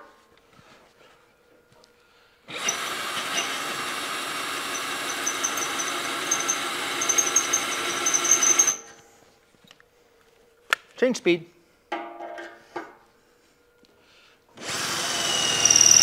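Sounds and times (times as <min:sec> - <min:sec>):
cordless drill cutting steel: 0:02.5 - 0:09.0, 0:14.6 - 0:16.0
high squeal from drill bit: 0:02.6 - 0:03.9, 0:04.6 - 0:09.0, 0:14.9 - 0:16.0.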